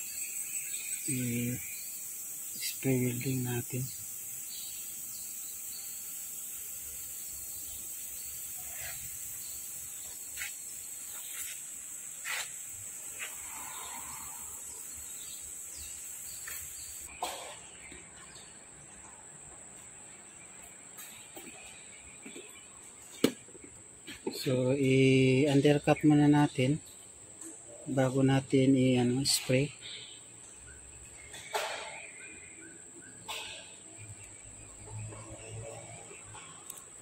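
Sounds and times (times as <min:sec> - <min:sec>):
high-pitched hiss: 0:00.0 - 0:17.5, 0:24.1 - 0:32.5.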